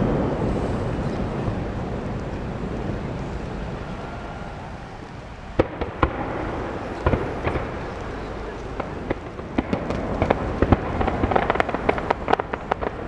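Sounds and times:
low rumble: 0.0 - 13.0
firework shells bursting: 5.1 - 13.0.

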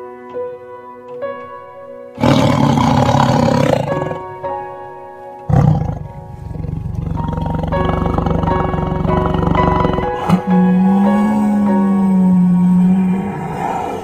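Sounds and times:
background music: 0.0 - 14.0
jaguars snarling and roaring: 2.2 - 4.3, 5.5 - 14.0
low pulsing growl: 5.5 - 14.0.

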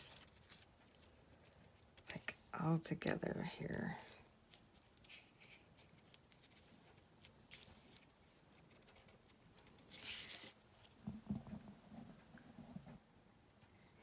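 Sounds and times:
loud paper rustle: 9.7 - 10.9.

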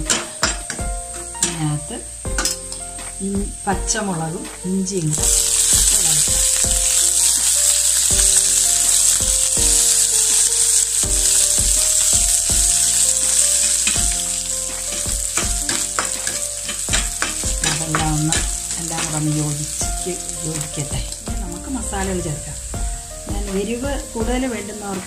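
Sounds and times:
food sizzling in hot oil: 0.0 - 25.0
spatula scraping a pan: 5.2 - 21.3.

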